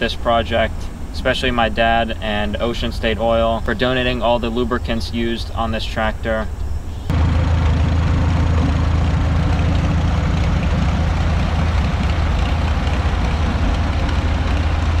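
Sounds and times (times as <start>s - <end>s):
tractor engine idling: 6.8s - 15.0s.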